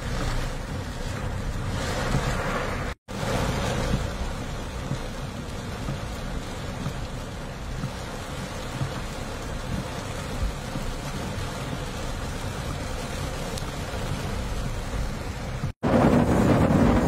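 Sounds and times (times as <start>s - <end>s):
car driving on wet street: 0.0s - 17.0s
rain pelting car roof: 0.0s - 17.0s.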